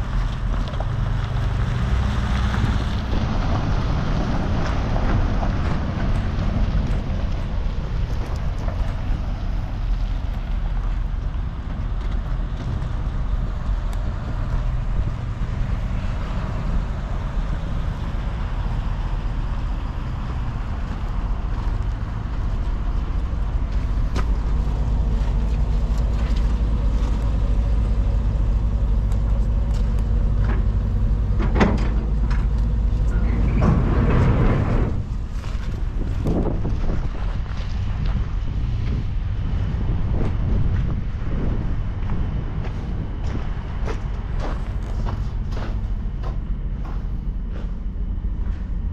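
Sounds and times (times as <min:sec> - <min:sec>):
vehicle engine idling: 0:00.0 - 0:48.9.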